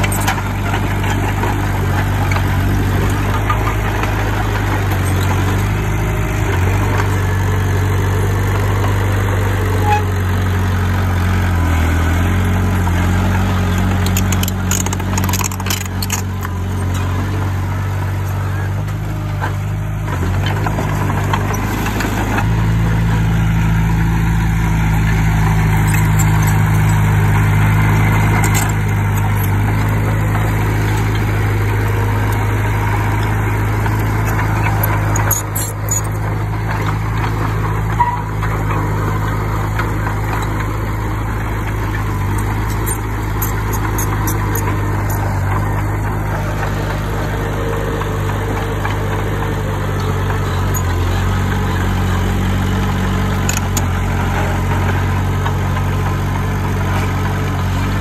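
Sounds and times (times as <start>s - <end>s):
heavy diesel engine running: 0.0s - 58.0s
sharp metallic clicks: 33.2s - 36.9s.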